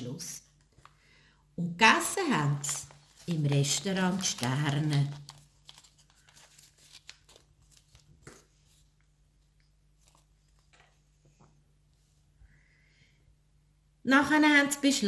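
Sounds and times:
paper crinkling: 0:02.1 - 0:09.1, 0:09.9 - 0:11.0.

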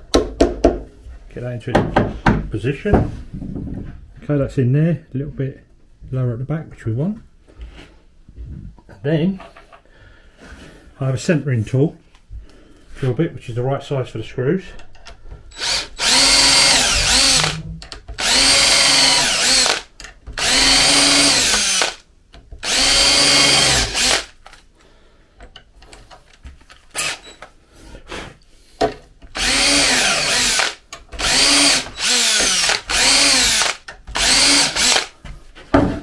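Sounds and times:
cordless drill drilling into wood: 0:15.6 - 0:17.6, 0:18.2 - 0:22.0, 0:22.6 - 0:24.4, 0:26.9 - 0:27.4, 0:29.3 - 0:35.1.

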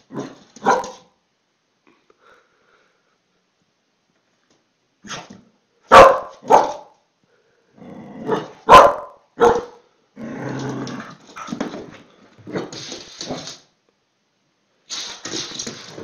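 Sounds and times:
small dog barking: 0:00.1 - 0:01.1, 0:05.9 - 0:06.9, 0:08.3 - 0:09.8
dog growling: 0:07.8 - 0:08.6, 0:10.2 - 0:11.6.

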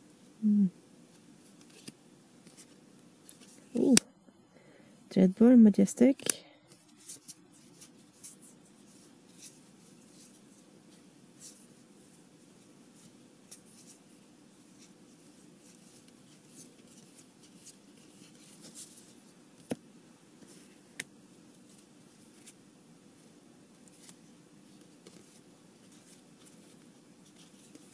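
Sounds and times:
paper cards rustling: 0:01.4 - 0:04.0, 0:23.8 - 0:27.9.

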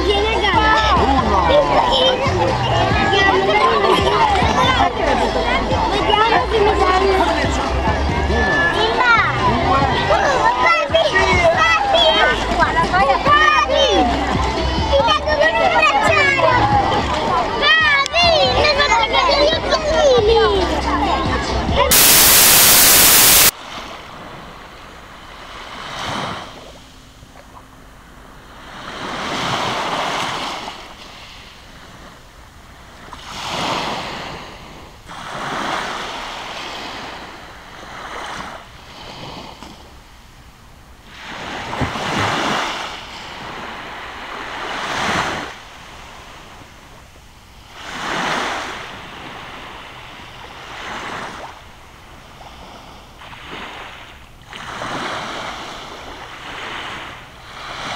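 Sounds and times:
small waves washing onto beach: 0:00.0 - 0:57.9
loud hiss: 0:21.9 - 0:23.5.

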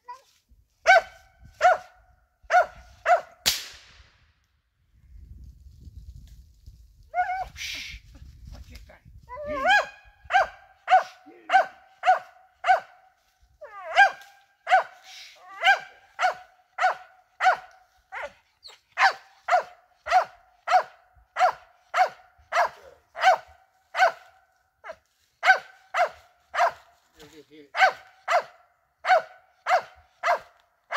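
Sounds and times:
dog barking steadily: 0:00.8 - 0:03.4, 0:09.5 - 0:27.0, 0:27.7 - 0:30.9.

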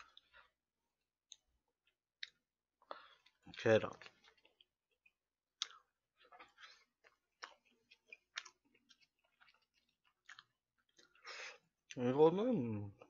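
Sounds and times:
person chewing: 0:00.0 - 0:00.6, 0:01.2 - 0:12.0.

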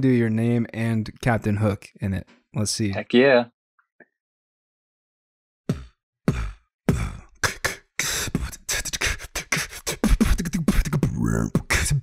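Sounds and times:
person beatboxing into a microphone: 0:05.7 - 0:12.0.

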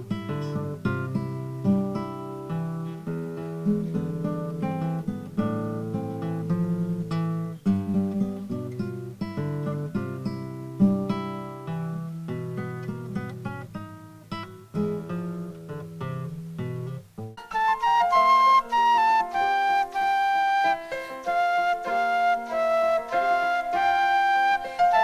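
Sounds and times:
classical guitar fingerstyle: 0:00.0 - 0:25.0.

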